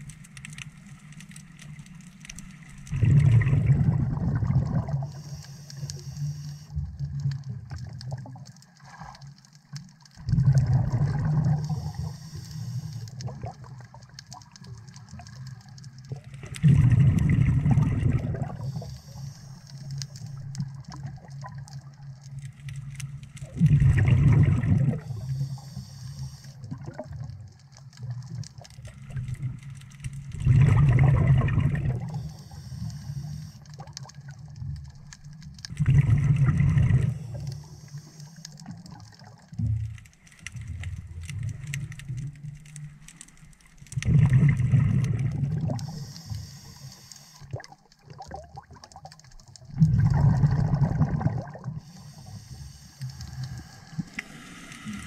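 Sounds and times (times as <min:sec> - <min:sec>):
bubbling exhalations underwater: 0:02.9 - 0:05.1, 0:10.2 - 0:12.1, 0:16.5 - 0:18.9, 0:23.4 - 0:25.3, 0:30.4 - 0:32.2, 0:35.7 - 0:37.4, 0:44.0 - 0:46.0, 0:47.4 - 0:51.9
regulator hiss: 0:05.1 - 0:06.7, 0:18.6 - 0:20.4, 0:32.2 - 0:33.6, 0:45.8 - 0:47.5, 0:51.9 - 0:55.0.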